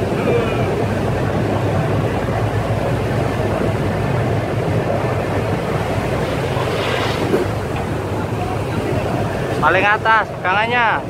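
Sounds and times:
boat engines droning: 0:00.0 - 0:11.0
sea rushing: 0:00.0 - 0:11.0
wind rushing: 0:03.5 - 0:09.6.

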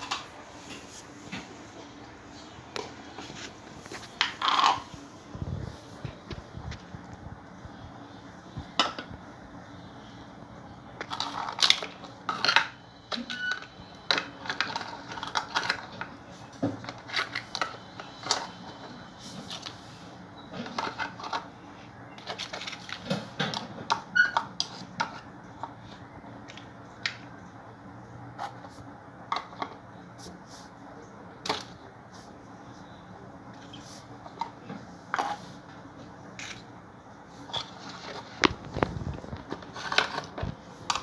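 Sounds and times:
plastic toys clattering: 0:03.8 - 0:04.9, 0:11.0 - 0:16.2, 0:20.6 - 0:21.5, 0:22.2 - 0:26.0, 0:37.4 - 0:41.0.

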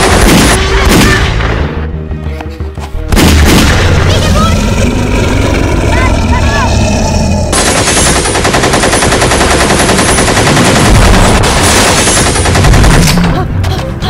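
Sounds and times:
automatic gunfire burst: 0:07.5 - 0:13.2.

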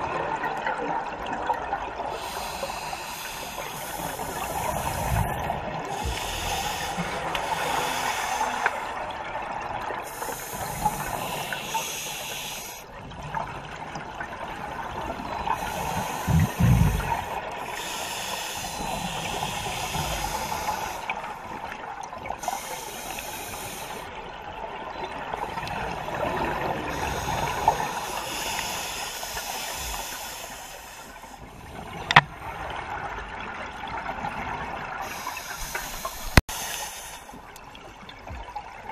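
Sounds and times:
regulator hissing inhalations: 0:02.1 - 0:09.0, 0:10.0 - 0:12.9, 0:15.4 - 0:21.6, 0:22.4 - 0:24.1, 0:26.8 - 0:31.4, 0:35.0 - 0:37.4
bubbly exhalations: 0:16.0 - 0:17.4.

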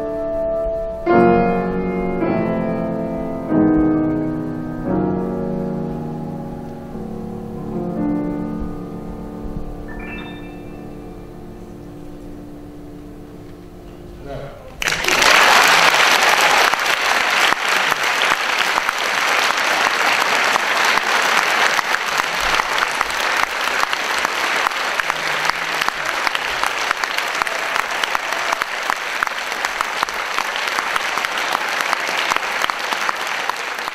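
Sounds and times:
audience applauding: 0:14.8 - 0:33.9.

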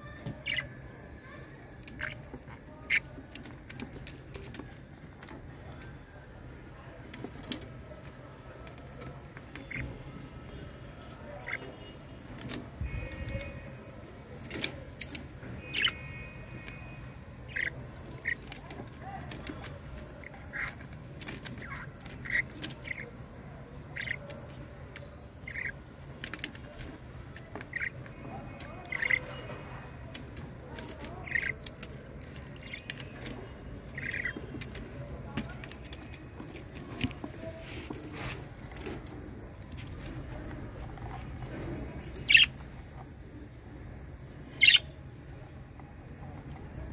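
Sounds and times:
warbling bird calls: 0:00.1 - 0:00.8, 0:17.4 - 0:18.6, 0:23.9 - 0:24.2, 0:27.6 - 0:28.0, 0:42.2 - 0:42.6, 0:44.6 - 0:45.0
budgerigars chirping: 0:00.4 - 0:00.7, 0:15.7 - 0:16.0, 0:17.4 - 0:18.4, 0:24.0 - 0:24.2, 0:42.2 - 0:42.6, 0:44.6 - 0:44.9.

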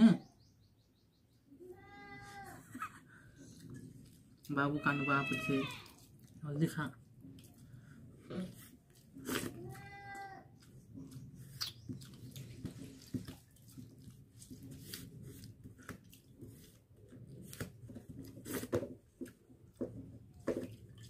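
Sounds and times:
fingers squeezing wet rice in bowl: 0:10.4 - 0:18.5.

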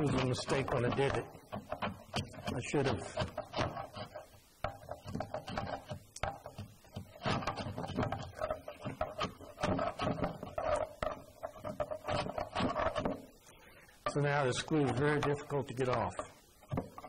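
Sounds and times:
scraper scraping glue off wood: 0:00.0 - 0:13.3.

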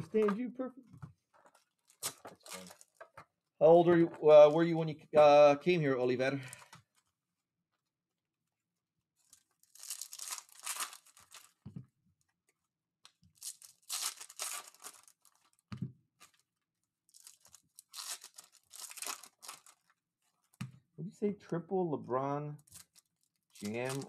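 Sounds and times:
foil wrappers tearing and crinkling: 0:01.8 - 0:03.0, 0:09.2 - 0:11.6, 0:13.3 - 0:15.6, 0:17.1 - 0:19.9, 0:22.7 - 0:24.0.

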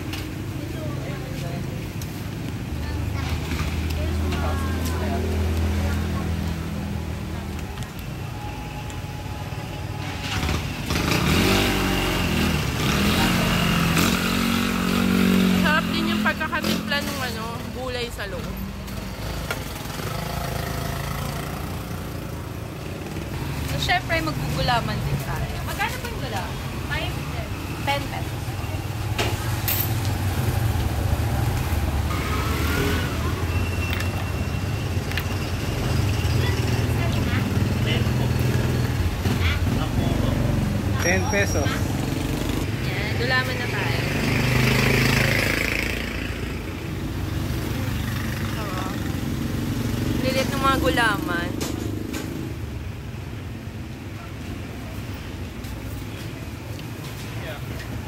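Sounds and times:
street traffic rumble: 0:00.0 - 0:58.0
motorcycle engine revving: 0:10.0 - 0:53.0.

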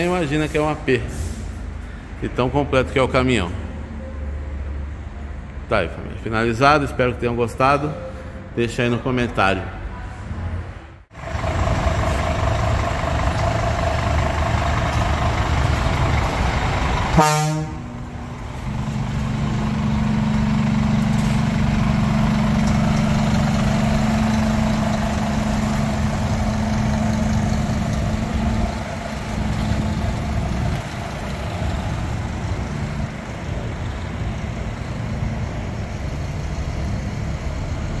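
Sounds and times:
truck diesel engine idling: 0:11.1 - 0:38.0.

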